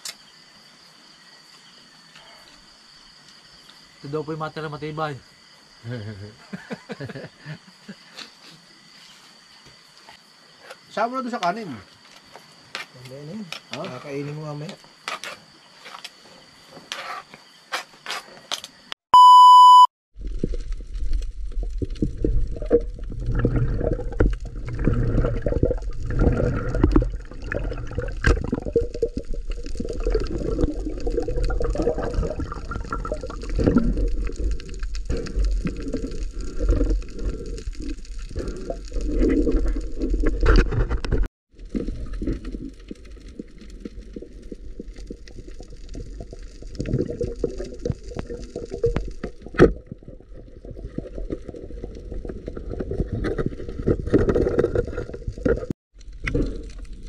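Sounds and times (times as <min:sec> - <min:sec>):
water sloshing and gurgling: 0:20.2 - 0:57.0.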